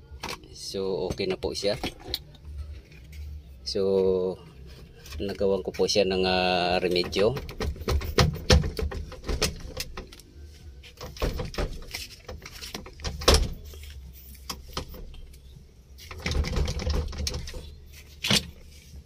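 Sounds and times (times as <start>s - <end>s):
clicks and knocks of metal parts: 0.2s - 3.2s, 6.8s - 15.4s, 16.0s - 18.6s.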